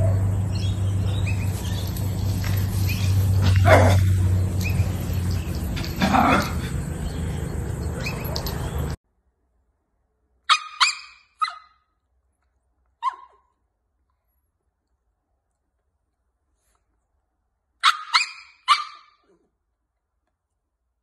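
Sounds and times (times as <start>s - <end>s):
outdoor background noise: 0.0s - 21.0s.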